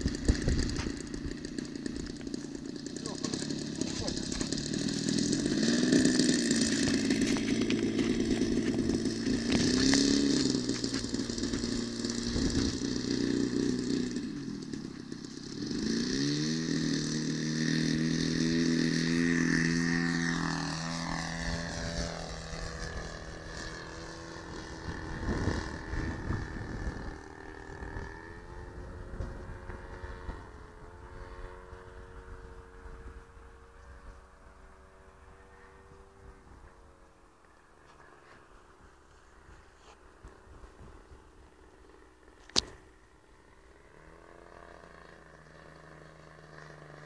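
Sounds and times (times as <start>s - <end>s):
model airplane engine: 0.0s - 47.0s.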